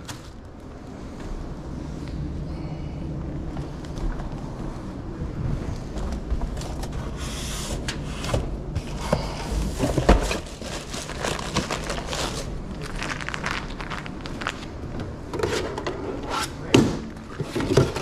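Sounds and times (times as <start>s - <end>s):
low hum: 0.0s - 17.4s
rustling and rubbing: 9.6s - 14.8s
plastic packaging crinkling: 10.2s - 14.9s
items knocking: 16.7s - 18.0s.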